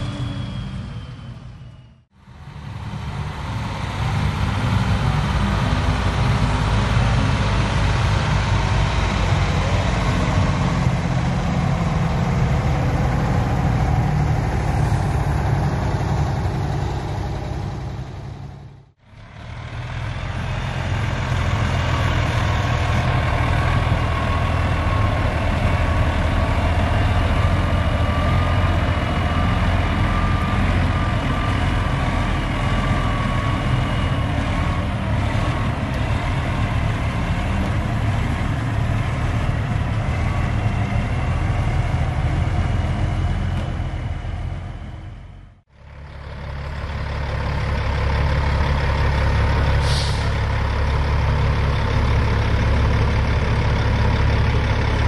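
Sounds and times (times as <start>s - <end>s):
diesel engine idling: 0.0s - 55.0s
diesel truck engine: 0.0s - 55.0s
short hiss: 49.8s - 50.4s.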